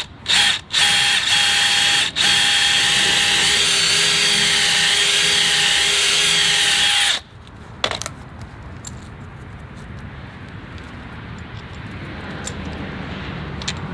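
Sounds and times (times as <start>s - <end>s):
cordless drill running under load: 0.0s - 7.2s
drill click: 0.0s - 7.2s.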